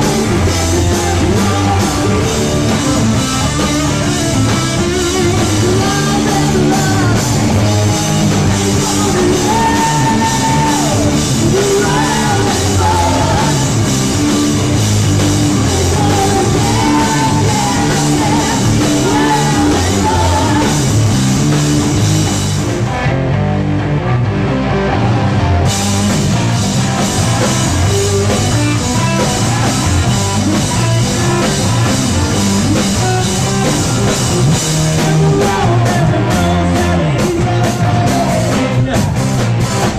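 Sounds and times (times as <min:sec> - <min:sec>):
person singing: 0:00.0 - 0:03.2, 0:05.2 - 0:13.9, 0:15.5 - 0:21.0, 0:33.0 - 0:39.3
drum kit: 0:00.0 - 0:39.9
electric guitar: 0:00.0 - 0:39.9.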